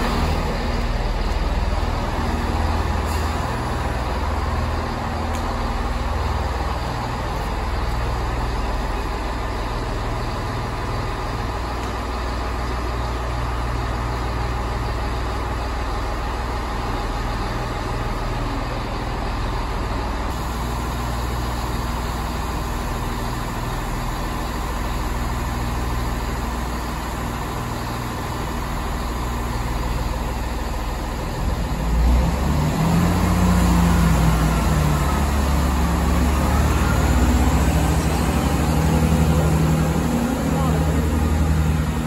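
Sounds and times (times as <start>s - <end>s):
diesel train engines idling: 0.0s - 42.0s
rising and falling whine: 32.2s - 42.0s.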